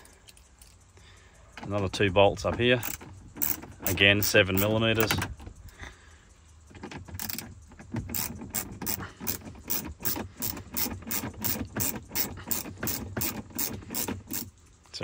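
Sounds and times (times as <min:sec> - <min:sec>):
hand ratchet clicking: 0:01.9 - 0:05.8, 0:06.6 - 0:14.9.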